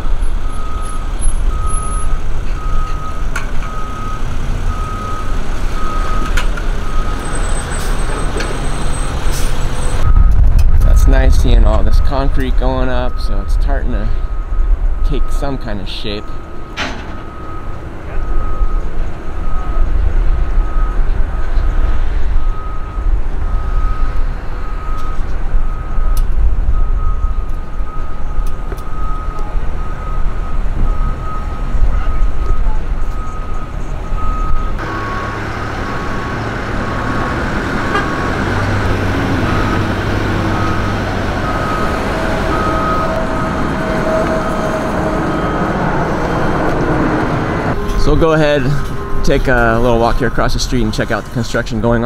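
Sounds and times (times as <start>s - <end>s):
backup alarm beeping: 0.0s - 21.7s, 22.3s - 51.5s
deep uneven rumble: 1.3s - 15.0s.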